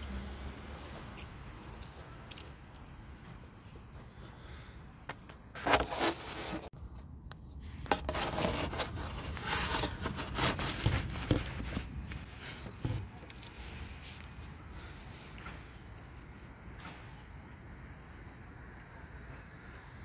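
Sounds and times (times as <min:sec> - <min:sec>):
scraping and rustling handling: 0:05.4 - 0:07.1, 0:07.7 - 0:15.0.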